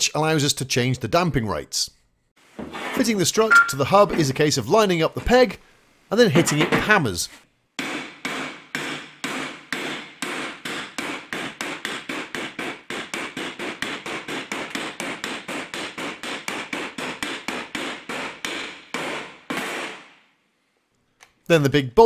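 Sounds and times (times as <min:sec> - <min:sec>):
hammer striking metal: 0:03.4 - 0:04.3.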